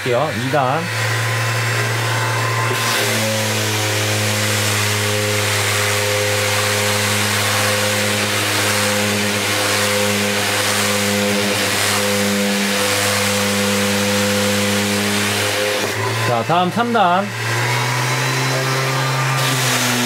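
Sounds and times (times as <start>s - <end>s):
sander motor humming: 0.0s - 20.0s.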